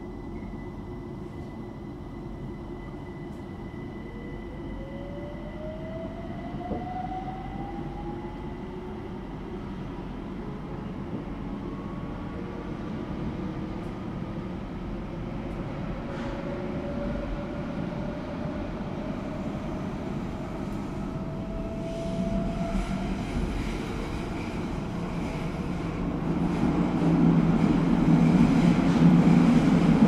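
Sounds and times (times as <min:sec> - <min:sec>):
train rumble: 0:06.5 - 0:30.0.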